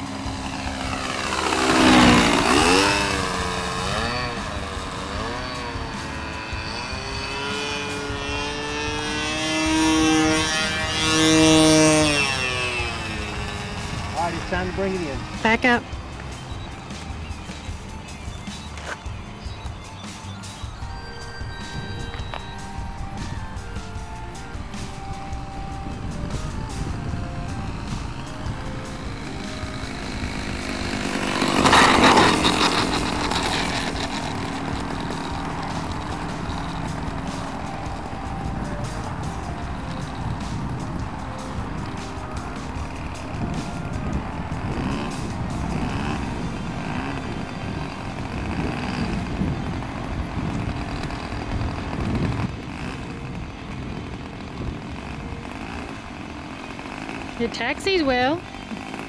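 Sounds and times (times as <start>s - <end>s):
model plane engine buzzing: 0.0s - 59.0s.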